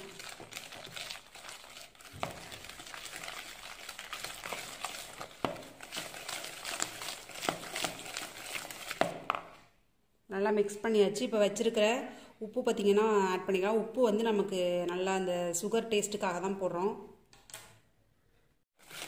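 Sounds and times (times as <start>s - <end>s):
whisk scraping in plastic bowl: 0.2s - 9.2s.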